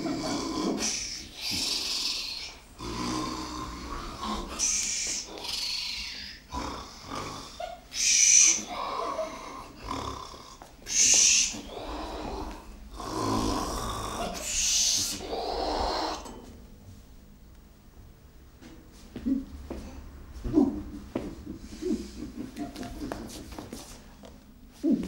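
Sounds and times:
low rasping voiced sounds: 0:00.0 - 0:16.4, 0:20.2 - 0:23.6, 0:24.7 - 0:25.0
person hissing exhalations: 0:00.6 - 0:02.6.

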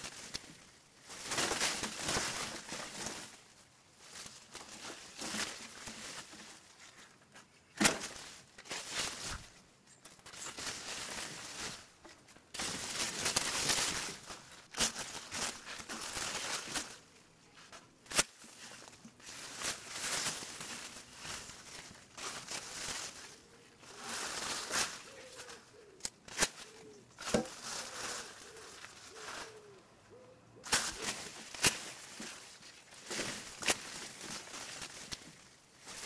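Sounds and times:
bushes rustling: 0:00.0 - 0:36.0
twig snaps: 0:24.8 - 0:27.9.

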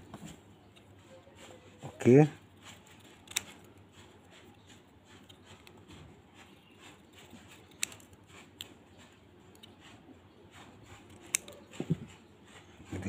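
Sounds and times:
scissors snipping paper: 0:00.7 - 0:12.2
scissor blades clicking: 0:03.0 - 0:03.7, 0:07.5 - 0:08.8, 0:11.0 - 0:11.6.

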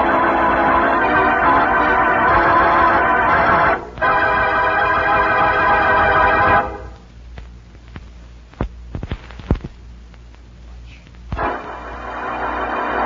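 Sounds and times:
organ chords: 0:00.0 - 0:07.1, 0:11.3 - 0:13.0
low hum and hiss: 0:00.0 - 0:13.0.

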